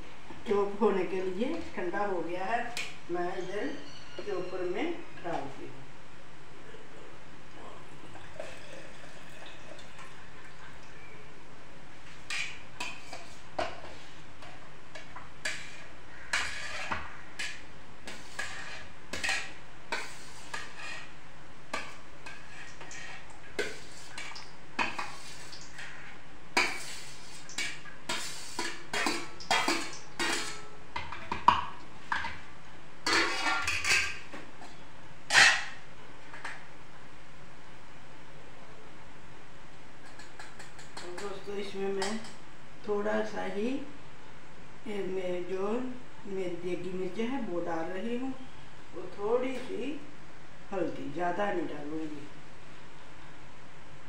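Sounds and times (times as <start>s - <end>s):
utensils clinking against a pot: 26.6s - 32.3s, 33.1s - 34.3s, 40.0s - 41.4s, 42.0s - 42.4s.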